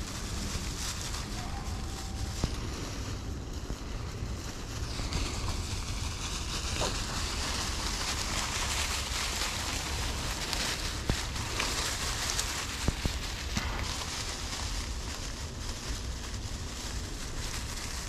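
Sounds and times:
footsteps in dry leaves: 0.0s - 18.0s
wind rumbling on microphone: 0.0s - 18.0s.

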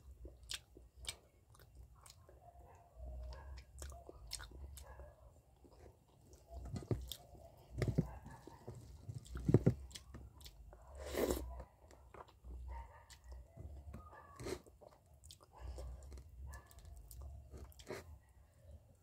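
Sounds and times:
wet chewing and mouth clicks: 0.1s - 5.0s, 5.6s - 18.2s.

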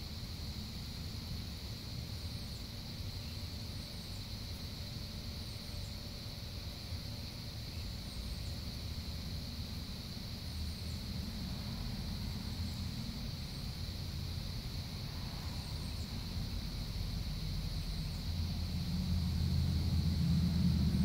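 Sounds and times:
steady low rumble: 11.2s - 21.0s.

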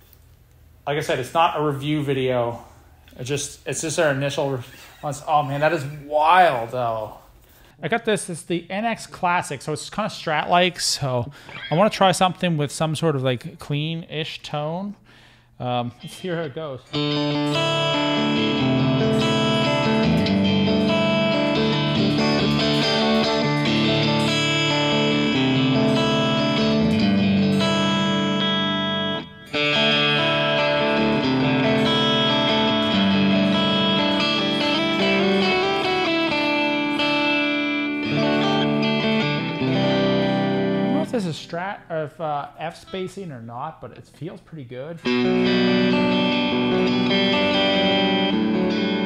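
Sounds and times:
electric guitar chords: 16.0s - 41.5s, 45.0s - 49.0s.

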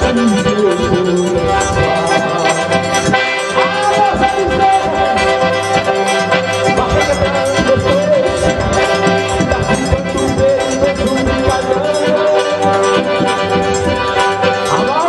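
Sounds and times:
accordion playing: 0.0s - 15.0s
band playing steady beat: 0.0s - 15.0s.

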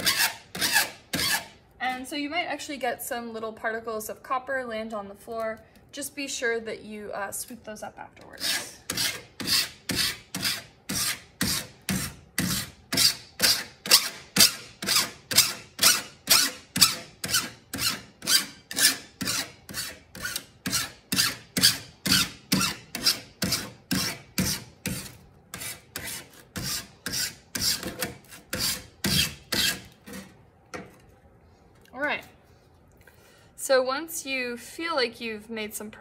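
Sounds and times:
file rasping on metal edge: 0.0s - 1.6s, 8.4s - 30.2s.

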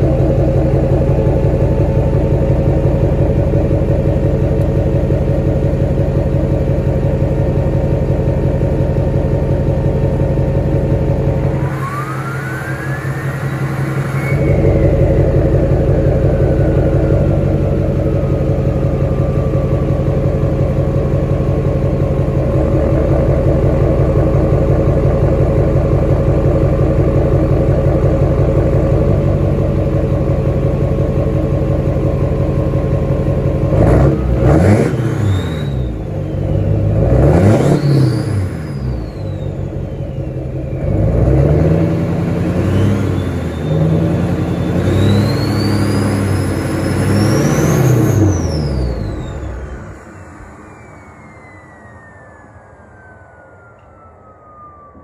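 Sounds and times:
diesel engine idling: 0.0s - 55.0s
engine revving: 0.0s - 55.0s
turbo whistle: 11.4s - 19.6s, 34.6s - 41.0s, 42.7s - 55.0s.

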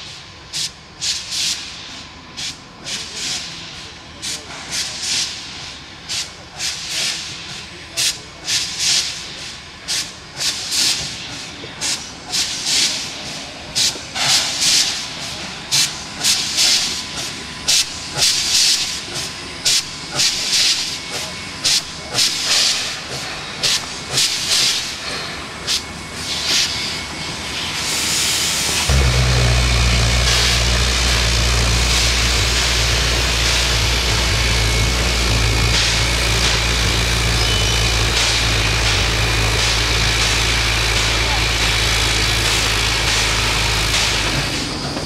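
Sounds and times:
steam hissing: 0.0s - 45.0s
steam locomotive chuffing: 0.0s - 45.0s.

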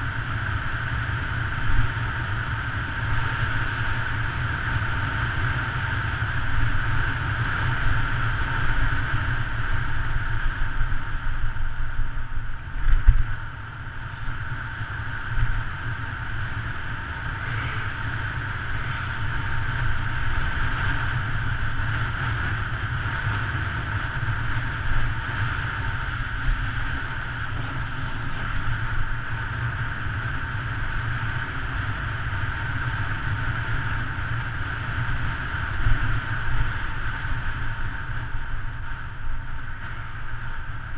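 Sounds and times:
bicycle tyre noise on asphalt: 0.0s - 40.9s.

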